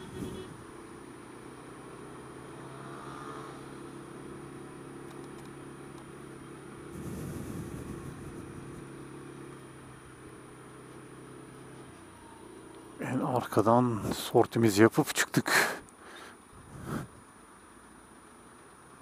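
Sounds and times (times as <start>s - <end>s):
scooter engine running: 3.7s - 13.1s.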